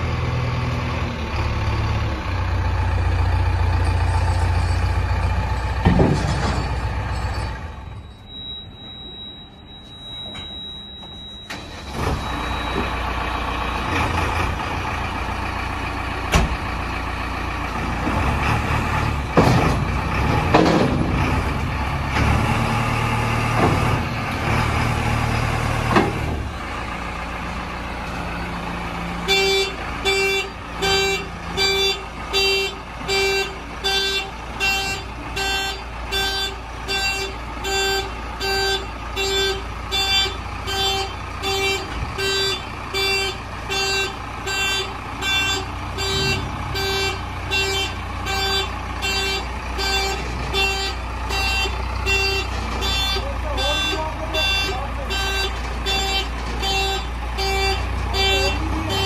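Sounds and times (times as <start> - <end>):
diesel engine running: 0.0 - 59.0
reversing alarm beeps: 7.2 - 13.1, 29.3 - 59.0.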